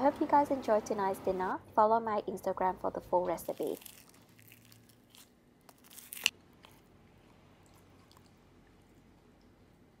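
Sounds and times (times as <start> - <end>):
pastry crust crackling: 3.3 - 8.3.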